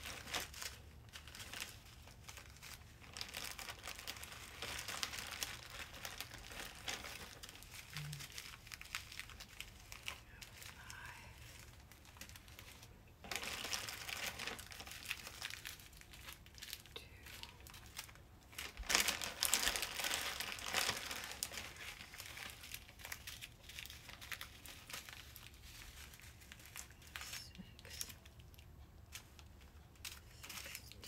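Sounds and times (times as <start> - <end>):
plastic bags crinkling: 0.0 - 31.0.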